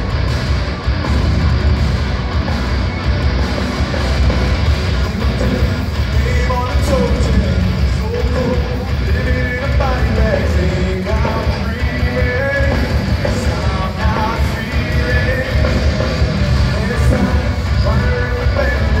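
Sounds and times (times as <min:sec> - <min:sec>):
heavy rock band playing live: 0:00.0 - 0:19.0
male lead singer: 0:04.3 - 0:19.0.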